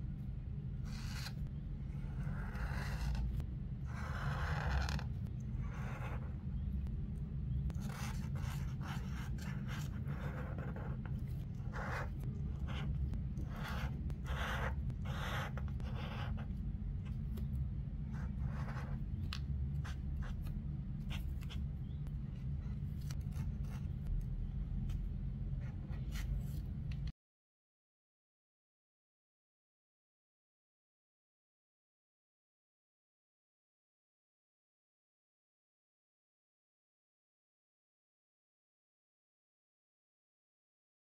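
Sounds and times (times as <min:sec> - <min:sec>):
low hum: 0:00.0 - 0:27.1
marker scratching on paper: 0:00.8 - 0:06.3, 0:07.7 - 0:17.5, 0:18.1 - 0:24.1, 0:24.9 - 0:26.7.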